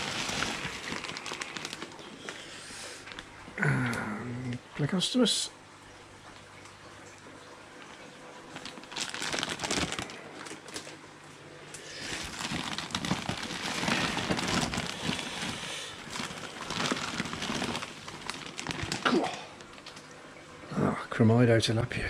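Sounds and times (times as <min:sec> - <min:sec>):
plastic bags crinkling: 0:00.0 - 0:02.5, 0:08.5 - 0:11.0, 0:11.9 - 0:20.1.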